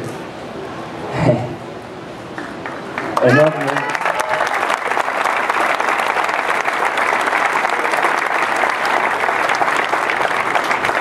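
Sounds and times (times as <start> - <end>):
crowd applauding: 2.4 - 11.0.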